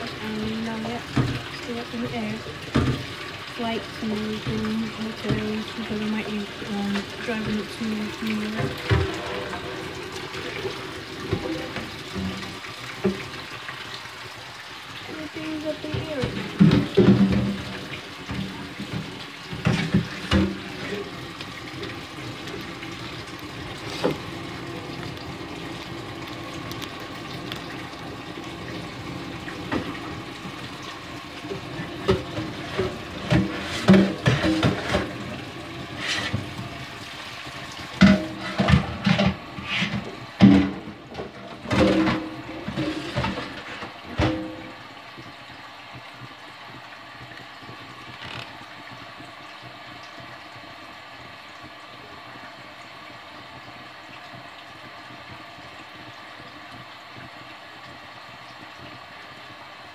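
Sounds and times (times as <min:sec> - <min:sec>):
tap running into sink: 0:00.0 - 0:03.4, 0:04.1 - 0:14.0, 0:15.0 - 0:36.8, 0:37.8 - 0:45.3, 0:47.6 - 0:48.6
pot clanking against sink: 0:08.4 - 0:13.4, 0:15.9 - 0:21.2, 0:31.5 - 0:35.3, 0:38.0 - 0:44.8.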